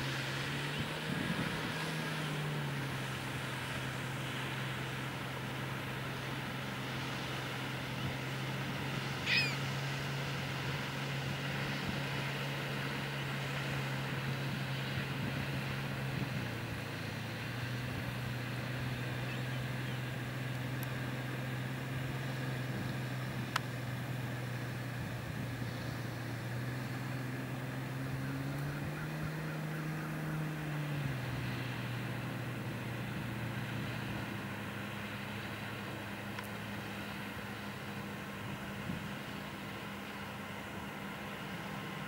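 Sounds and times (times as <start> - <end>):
low engine hum: 0.0 - 42.0
bird call: 9.1 - 9.8, 19.1 - 20.1.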